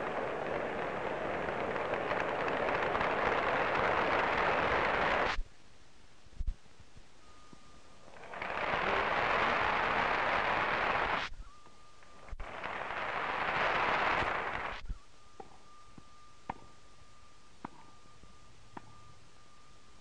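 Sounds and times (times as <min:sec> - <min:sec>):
crowd applauding: 0:00.0 - 0:05.4, 0:08.1 - 0:11.3, 0:12.2 - 0:14.8
faint steady whine: 0:00.0 - 0:20.0.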